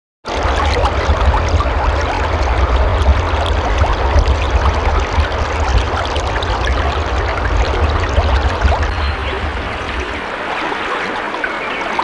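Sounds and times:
stream water running: 0.3s - 12.0s.

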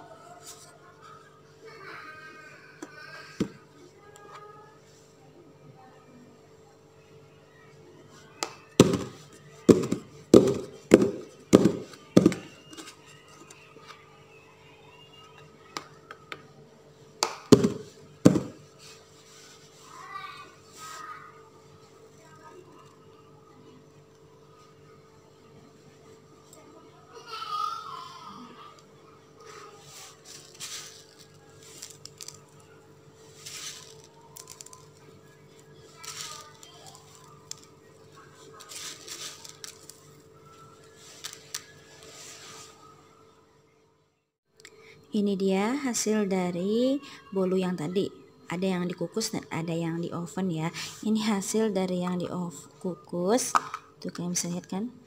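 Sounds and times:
sprinkles rustling and pattering: 29.5s - 40.2s.

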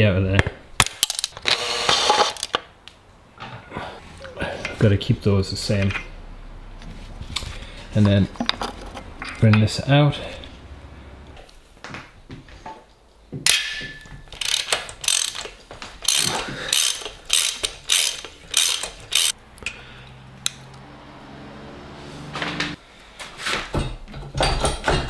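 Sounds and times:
socket ratchet clicking: 14.4s - 19.4s.

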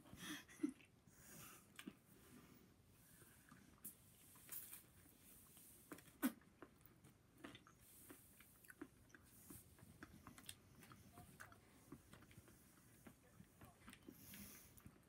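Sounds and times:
person chewing food: 0.6s - 15.0s.

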